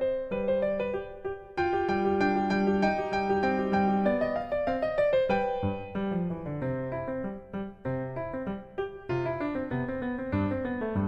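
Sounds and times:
keyboard melody: 0.0s - 11.0s.

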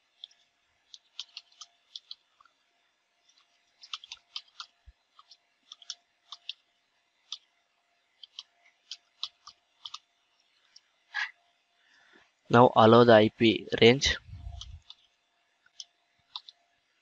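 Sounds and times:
keyboard typing: 0.1s - 2.5s, 3.3s - 6.6s, 8.2s - 10.1s, 15.7s - 16.6s.

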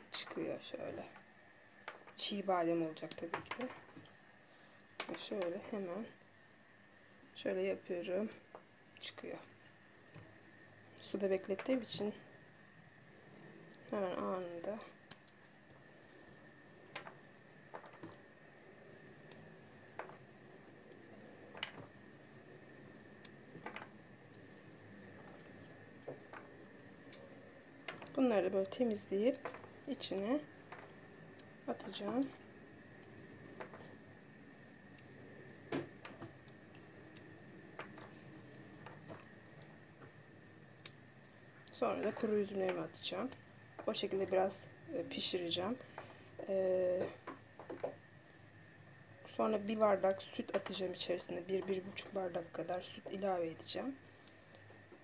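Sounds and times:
faint wet squishes: 13.0s - 48.1s
wet squishes of almonds peeled: 22.6s - 34.1s.

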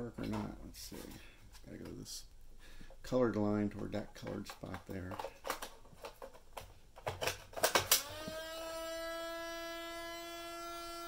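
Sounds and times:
camera motor whine and hum: 8.0s - 11.0s.

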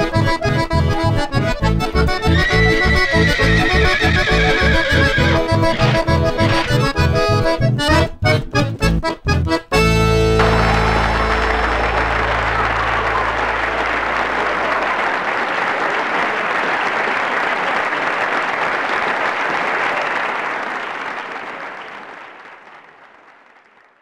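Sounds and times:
audience clapping: 4.9s - 7.4s, 10.2s - 24.0s.

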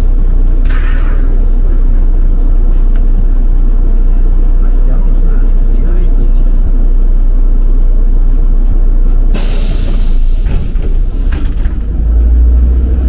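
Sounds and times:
bus engine rumbling: 0.0s - 13.0s
short burst of hissing: 9.4s - 10.4s.

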